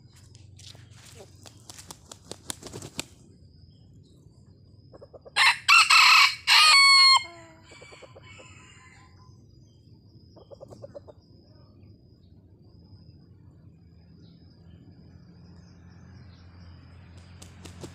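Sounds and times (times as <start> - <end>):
rooster wings beating: 0.7 - 3.2, 17.2 - 17.9
rooster crowing: 5.4 - 9.3.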